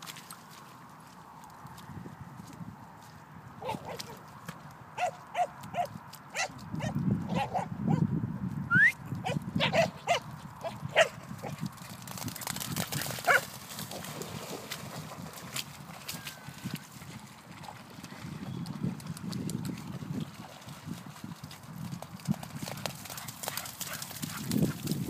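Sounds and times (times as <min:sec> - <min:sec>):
dogs splashing through puddle: 0:00.0 - 0:06.8, 0:10.0 - 0:25.0
dogs yipping: 0:05.0 - 0:08.0, 0:09.2 - 0:11.1.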